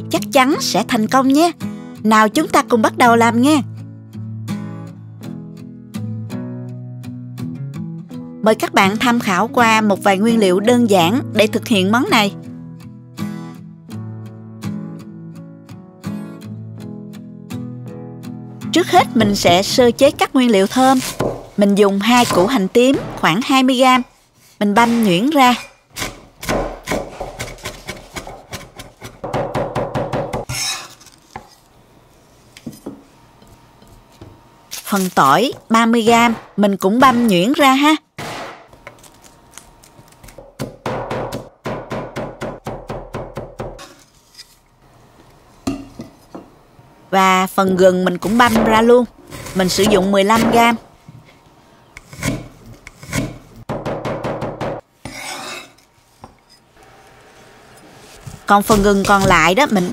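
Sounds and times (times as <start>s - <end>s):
cleaver chopping on wooden board: 26.0s - 30.5s
blade scraping across board: 30.5s - 31.5s, 55.0s - 55.9s.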